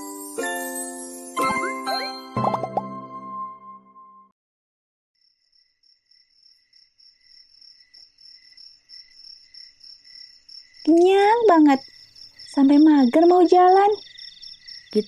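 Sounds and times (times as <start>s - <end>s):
crickets chirping: 5.2s - 15.0s.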